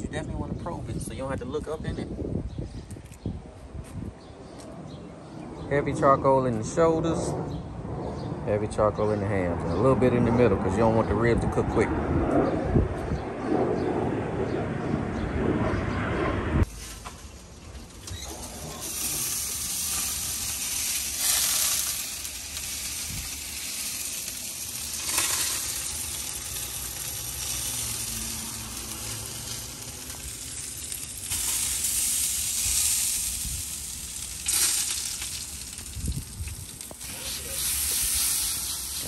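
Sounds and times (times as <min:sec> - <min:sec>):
meat sizzling in a smoker: 0:16.6 - 0:39.0.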